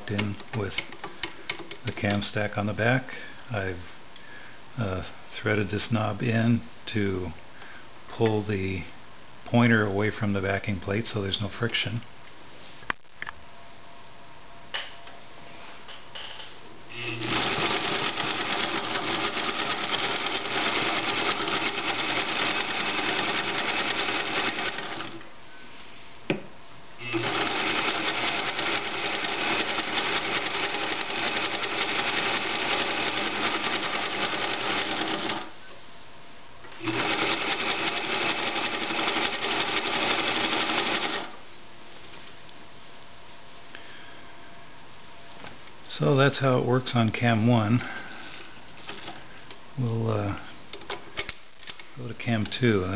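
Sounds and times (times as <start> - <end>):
sewing machine stitching: 17.0 - 25.2, 27.0 - 35.5, 36.8 - 41.4.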